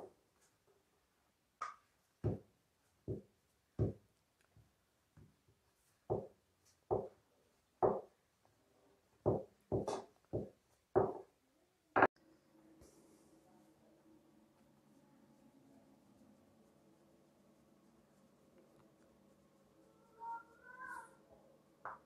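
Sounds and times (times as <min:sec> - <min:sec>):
rolling pin knocking on counter: 0:02.2 - 0:02.5, 0:03.1 - 0:04.0, 0:07.8 - 0:08.1, 0:09.3 - 0:11.3.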